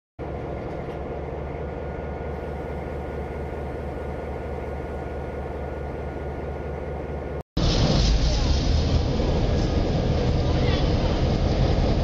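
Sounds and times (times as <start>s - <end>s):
faint steady whine: 0.2s - 7.4s
diesel locomotive engine idling: 0.2s - 12.0s.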